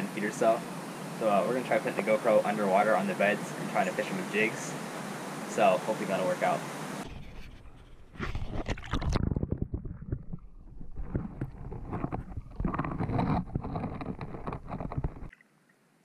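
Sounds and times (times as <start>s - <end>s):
water sloshing: 7.0s - 15.4s
muffled underwater rumbling: 7.1s - 15.3s
camera housing knocking underwater: 8.3s - 15.3s.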